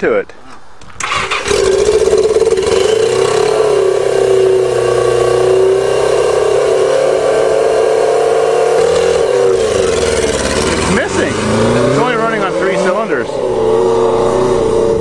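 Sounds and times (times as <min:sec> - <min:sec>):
motorcycle engine running unevenly: 0:01.6 - 0:05.4, 0:08.8 - 0:11.3.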